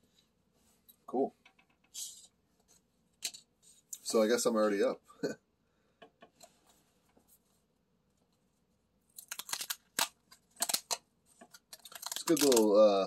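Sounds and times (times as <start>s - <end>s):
paper tabs ripping: 9.2s - 12.8s.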